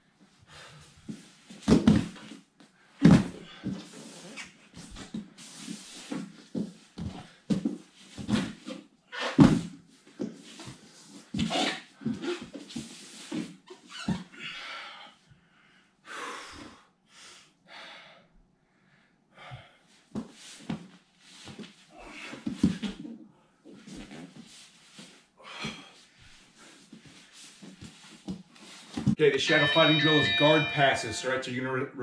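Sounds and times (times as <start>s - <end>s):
body thumping on foam mats: 1.5s - 2.4s, 3.0s - 3.8s, 9.4s - 10.4s.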